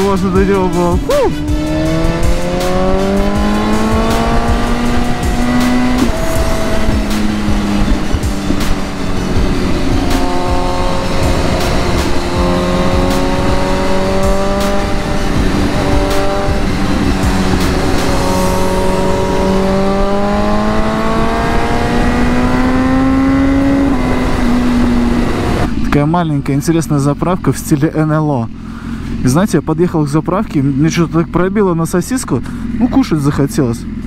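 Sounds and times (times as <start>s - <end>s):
motorcycle engine running: 0.0s - 34.0s
wind rush: 1.7s - 25.9s.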